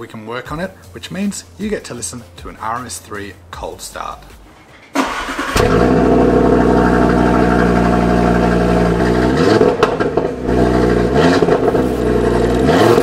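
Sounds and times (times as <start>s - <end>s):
car engine cold start idling: 5.0s - 12.5s.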